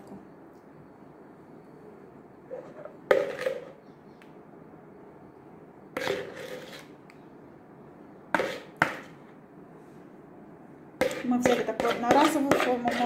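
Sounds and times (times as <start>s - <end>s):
spoon knocking in plastic bowl: 11.0s - 13.0s.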